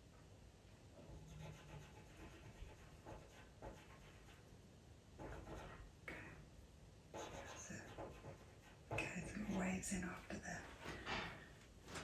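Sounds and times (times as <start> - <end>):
pencil scratching on paper: 1.0 - 4.4, 5.2 - 5.9, 7.1 - 10.9.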